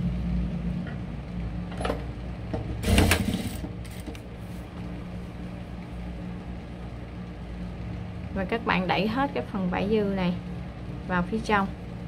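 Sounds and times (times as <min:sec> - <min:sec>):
sewing machine humming: 0:02.8 - 0:04.2.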